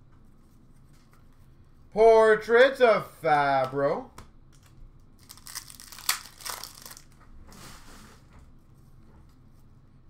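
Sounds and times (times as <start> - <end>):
faint rustle of cards: 0.1 - 1.9.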